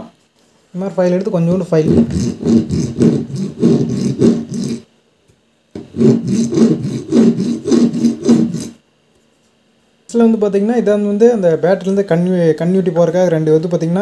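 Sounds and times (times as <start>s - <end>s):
hand file rasping on metal: 1.9s - 4.8s, 5.8s - 8.8s.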